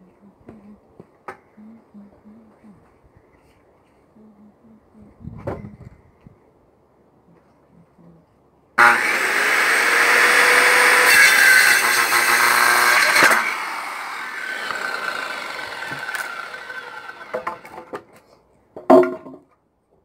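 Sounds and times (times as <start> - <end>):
circular saw cutting wood: 8.8 - 17.9.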